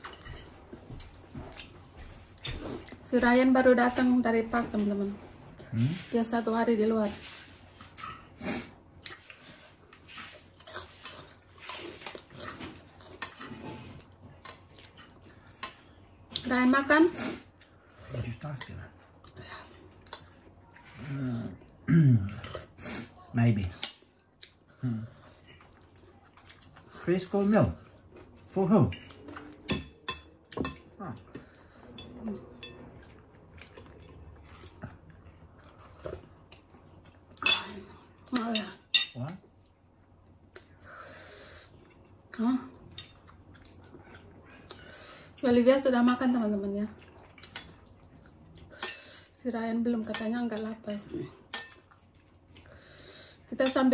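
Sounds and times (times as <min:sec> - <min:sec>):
quiet chewing: 0:00.0 - 0:03.1, 0:23.8 - 0:27.0, 0:27.6 - 0:38.4, 0:39.4 - 0:45.4, 0:46.8 - 0:49.2, 0:51.1 - 0:53.5.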